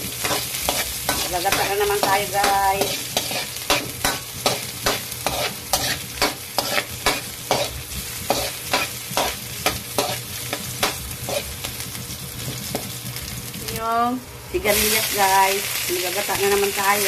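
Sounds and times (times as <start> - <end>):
frying sizzle: 0.0 - 17.0
metal spatula scraping a wok: 0.1 - 11.6.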